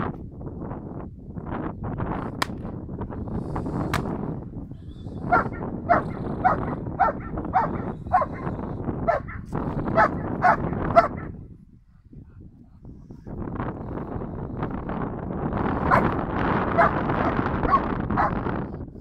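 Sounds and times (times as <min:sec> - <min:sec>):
dog barking: 0:05.3 - 0:11.4, 0:15.8 - 0:18.4.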